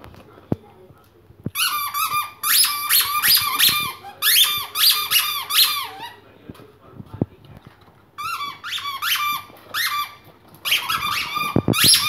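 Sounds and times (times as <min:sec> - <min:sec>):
squeaky toy ball squeaking: 0:01.6 - 0:06.2, 0:08.2 - 0:12.0.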